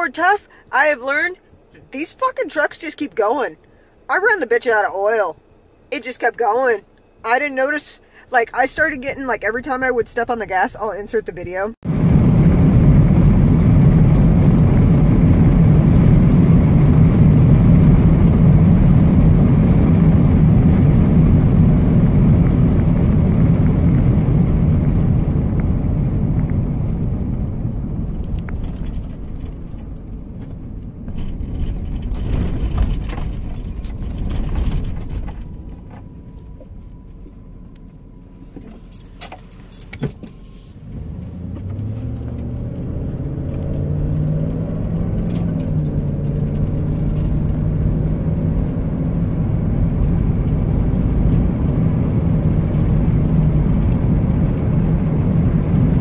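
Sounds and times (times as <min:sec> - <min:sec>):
car engine and road noise: 0:00.0 - 0:56.0
light clicks and rattles: 0:28.1 - 0:38.0.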